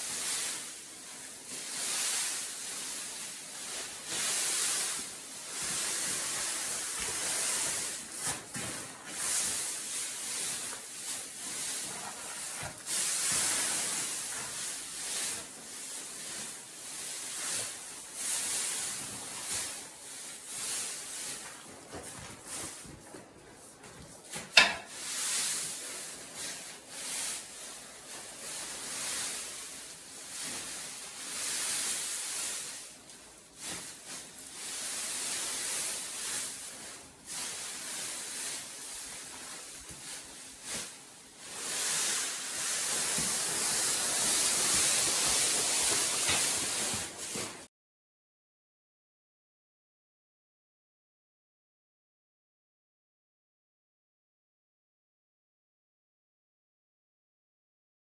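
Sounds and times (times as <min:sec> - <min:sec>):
dry straw rustling and crunching: 0:00.0 - 0:22.8, 0:24.2 - 0:47.6.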